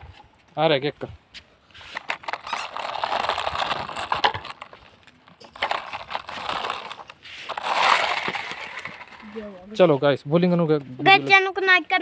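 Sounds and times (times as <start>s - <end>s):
toy wheels rolling over gritty dirt: 1.7s - 10.0s.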